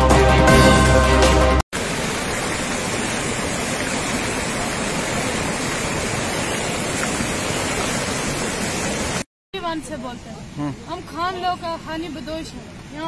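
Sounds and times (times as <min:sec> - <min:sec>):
floodwater rushing down stream: 0:01.8 - 0:09.3.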